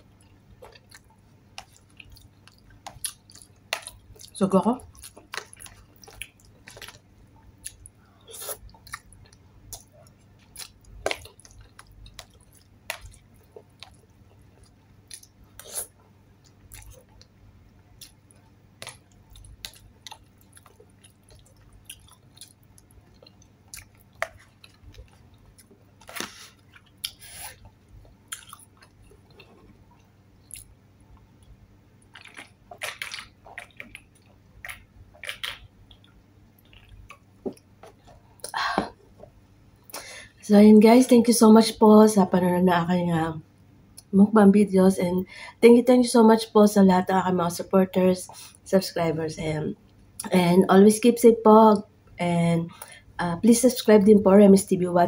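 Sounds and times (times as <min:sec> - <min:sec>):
wet chewing and mouth smacks: 0:00.0 - 0:17.3, 0:18.0 - 0:38.5.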